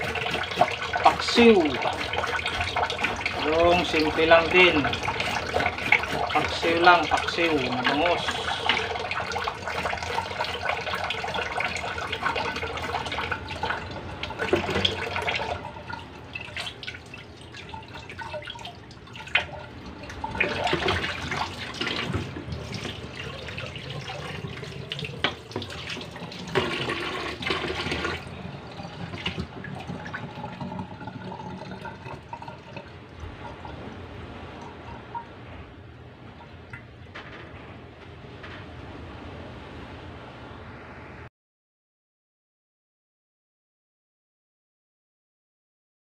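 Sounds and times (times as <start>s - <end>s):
tap water running into sink: 0.0s - 33.8s.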